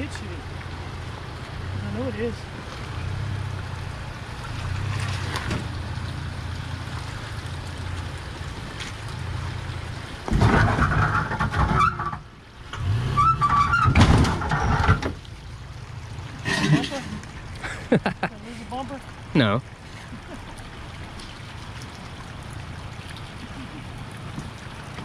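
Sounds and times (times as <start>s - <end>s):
truck engine at low revs: 0.0s - 25.0s
truck scraping over rock: 10.3s - 15.2s, 16.4s - 17.3s.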